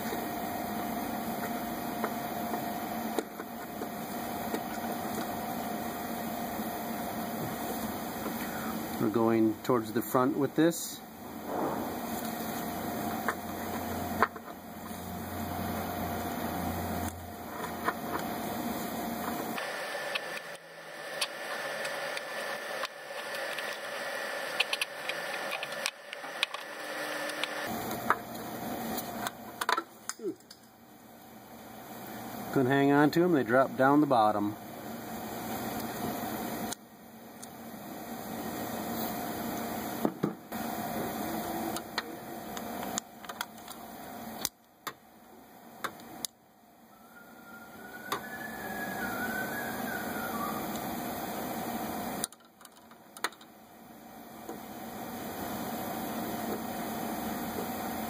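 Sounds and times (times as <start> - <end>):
steady hiss: 7.4 - 14.1
hiss: 11.3 - 12.6.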